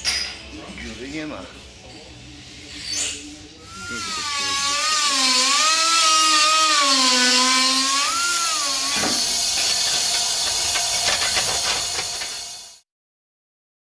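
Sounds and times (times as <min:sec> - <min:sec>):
die grinder whining on steel: 0:03.6 - 0:12.8.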